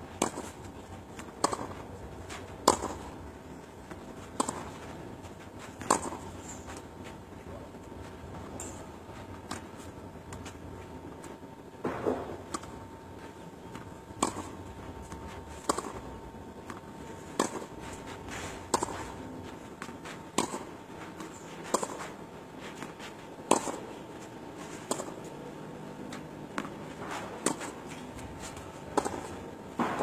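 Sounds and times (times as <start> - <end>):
tennis ball struck by rackets: 0.2 - 0.6, 1.2 - 3.2, 4.1 - 4.9, 5.6 - 6.8, 14.2 - 14.7, 15.5 - 16.1, 16.7 - 17.9, 18.7 - 19.2, 20.3 - 20.7, 21.7 - 22.1, 23.5 - 23.8, 24.8 - 25.2, 26.6 - 30.0.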